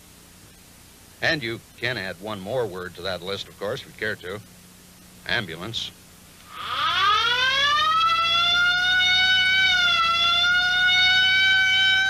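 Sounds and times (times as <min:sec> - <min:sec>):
ambulance siren wailing: 0:06.5 - 0:12.0.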